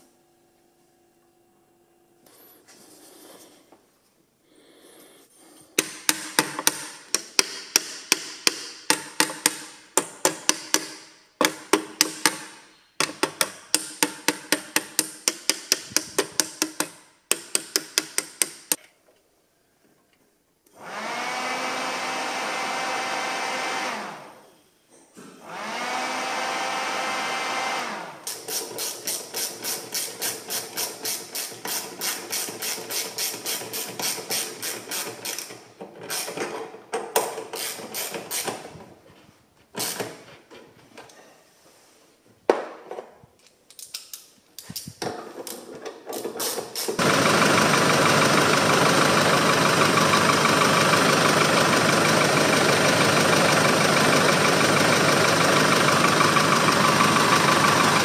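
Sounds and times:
ratchet wrench clicking: 13.1s - 18.8s, 28.3s - 35.5s.

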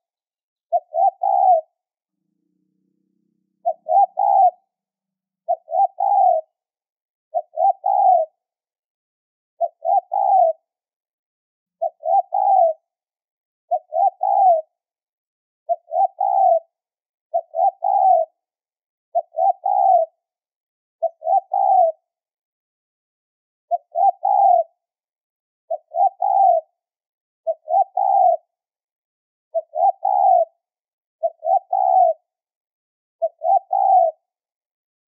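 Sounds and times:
dove cooing: 0.7s - 1.8s, 3.4s - 4.7s, 5.5s - 6.6s, 7.3s - 8.4s, 9.6s - 10.7s, 11.8s - 12.9s, 13.7s - 14.7s, 15.7s - 18.4s, 19.1s - 20.2s, 21.0s - 22.0s, 23.7s - 24.8s, 25.7s - 26.7s, 27.5s - 28.5s, 29.5s - 30.6s, 31.2s - 32.3s, 33.2s - 34.3s.

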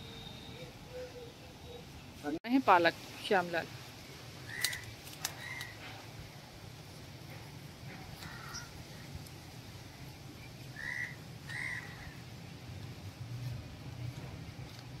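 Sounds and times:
crow cawing: 8.2s - 8.7s, 10.8s - 12.2s.

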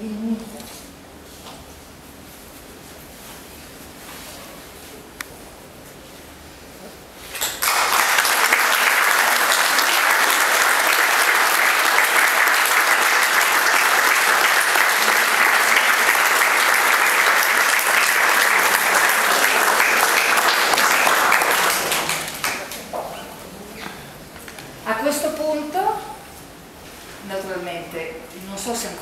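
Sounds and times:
audience applause: 7.4s - 23.1s.

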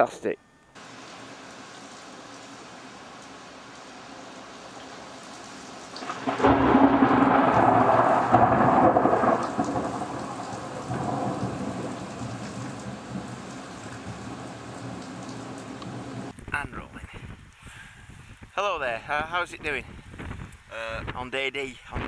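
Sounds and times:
heavy rain: 0.8s - 16.3s
thunder rumbling: 5.9s - 16.3s.

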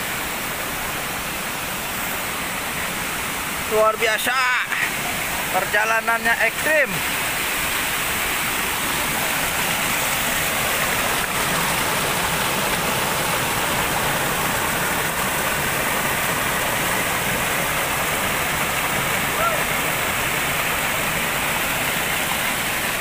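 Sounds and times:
stream water rushing over rocks: 0.0s - 23.0s.

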